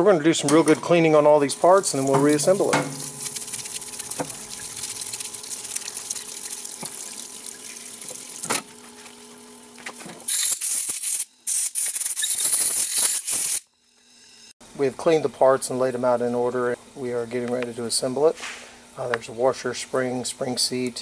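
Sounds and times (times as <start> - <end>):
wet scrubbing of metal parts: 1.6 - 9.1.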